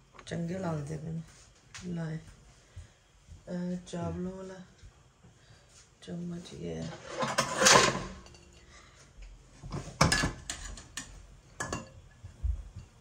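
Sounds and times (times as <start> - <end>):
spoon clinking against metal pot: 10.2 - 12.0.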